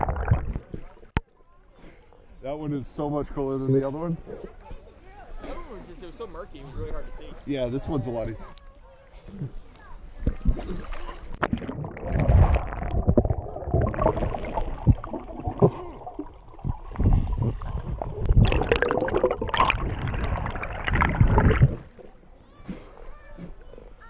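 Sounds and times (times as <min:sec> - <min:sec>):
underwater bubbles gurgling: 0:00.0 - 0:01.2, 0:10.3 - 0:22.4
low underwater rumbles and knocks: 0:11.4 - 0:21.9.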